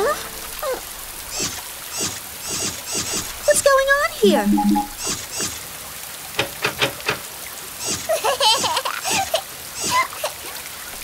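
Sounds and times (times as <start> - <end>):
rain pouring: 0.0 - 11.0
drips plinking: 4.2 - 5.0.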